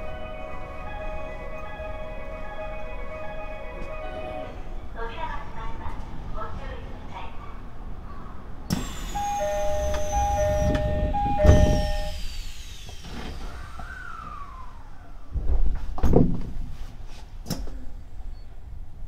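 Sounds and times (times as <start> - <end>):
sliding doors thumping shut: 8.7 - 12.2, 15.3 - 16.7
two-tone door chime: 8.8 - 12.3
clunks and knocks: 15.4 - 16.7.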